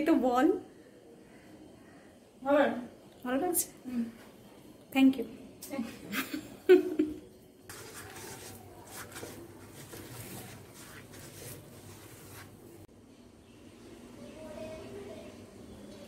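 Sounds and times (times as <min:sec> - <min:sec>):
pastry brush strokes: 0:07.7 - 0:12.9.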